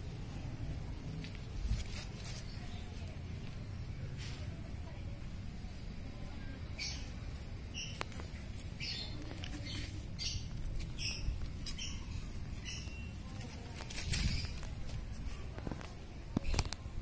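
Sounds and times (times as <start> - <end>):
high-pitched squeaky calls: 6.8 - 13.2.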